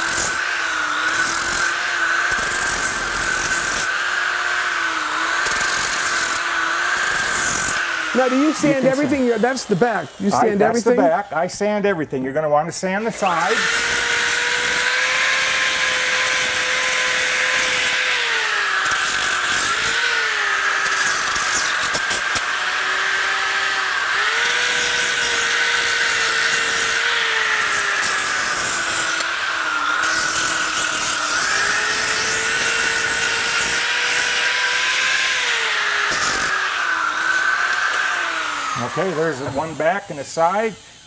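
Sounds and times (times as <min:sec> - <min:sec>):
electric sander motor whine: 0:00.0 - 0:11.4, 0:13.0 - 0:41.0
sandpaper rasping on wood: 0:07.1 - 0:11.2, 0:38.8 - 0:40.8.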